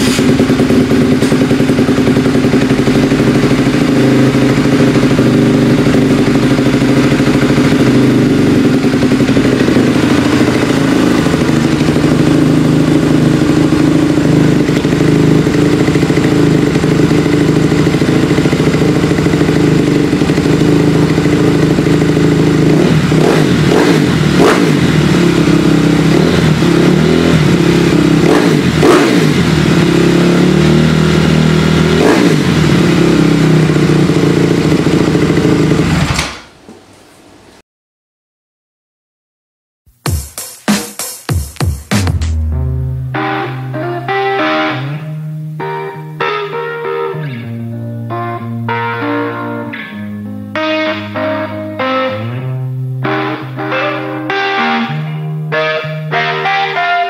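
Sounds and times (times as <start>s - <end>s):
motorcycle engine idling: 0.0s - 36.4s
quick throttle blips: 0.0s - 36.5s.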